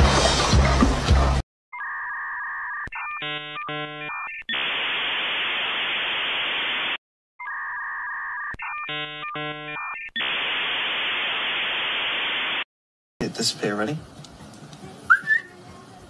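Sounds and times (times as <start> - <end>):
static hiss: 4.5 - 7.0, 10.2 - 12.7.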